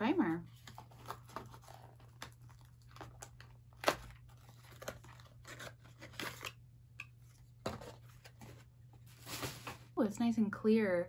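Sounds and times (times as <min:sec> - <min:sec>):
packaging crinkling and tearing: 0:00.5 - 0:06.6.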